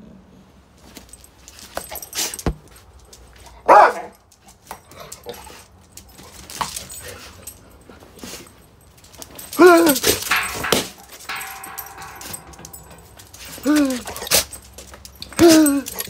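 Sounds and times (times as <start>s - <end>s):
dog barking: 3.6s - 4.2s
dogs scuffling and knocking: 4.6s - 16.0s.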